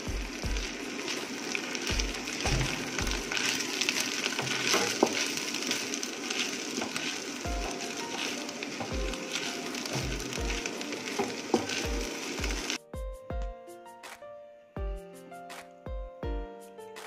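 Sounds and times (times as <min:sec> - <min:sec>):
rice sizzling in a pan: 0:00.0 - 0:12.9
wooden spatula scraping pan: 0:01.0 - 0:12.8
background music with low beats: 0:11.9 - 0:16.6.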